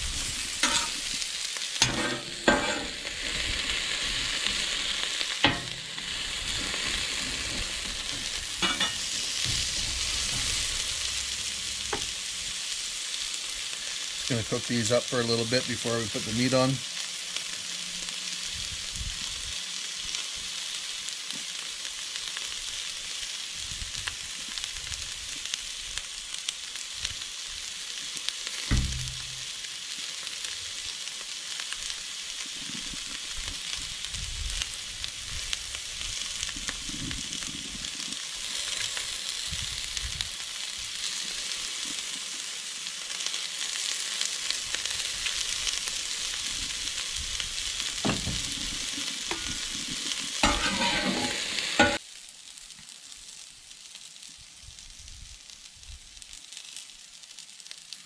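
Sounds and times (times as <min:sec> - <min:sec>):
vegetables sizzling on a griddle: 0:00.0 - 0:58.0
dull thump: 0:28.7 - 0:29.5.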